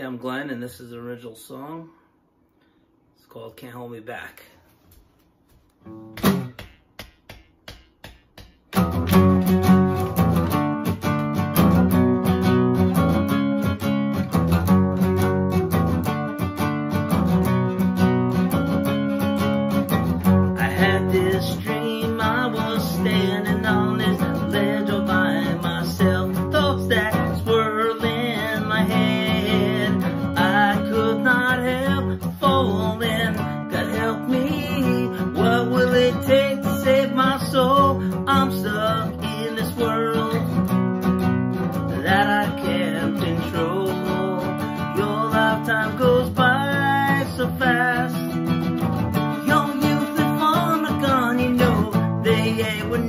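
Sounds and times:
acoustic guitar strumming: 0:05.8 - 0:06.9, 0:07.8 - 0:53.0
man singing: 0:20.4 - 0:40.8, 0:41.7 - 0:53.0.

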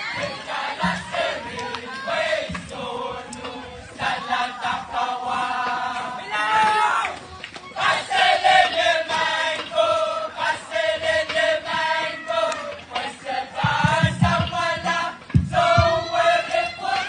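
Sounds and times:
group chanting in unison: 0:00.0 - 0:07.0, 0:07.8 - 0:17.0
low thumps: 0:13.6 - 0:16.6.

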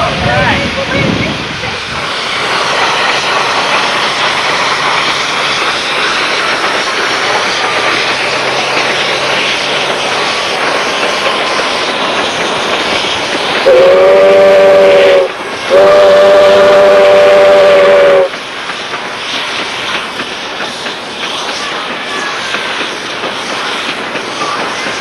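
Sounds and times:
steady rushing noise: 0:00.0 - 0:17.0
steam locomotive whistle: 0:13.6 - 0:18.3.

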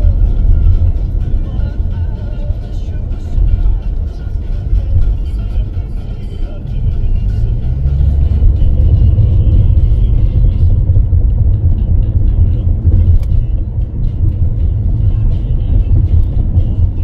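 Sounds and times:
vehicle low rumble: 0:00.0 - 0:17.0.

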